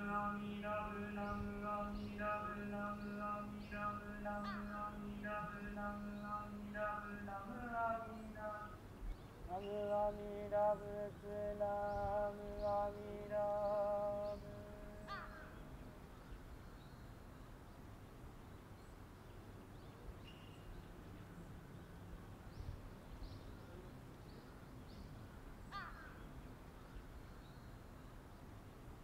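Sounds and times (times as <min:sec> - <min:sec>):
small birds chirping: 0:00.0 - 0:28.6
crow cawing: 0:15.0 - 0:15.6, 0:25.7 - 0:26.2.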